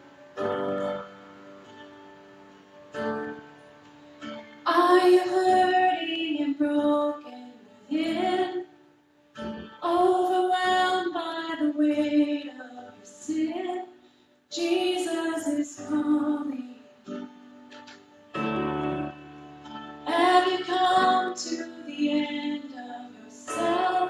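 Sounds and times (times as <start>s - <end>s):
woman singing worship song: 4.6s - 8.7s, 9.8s - 16.9s, 20.1s - 24.0s.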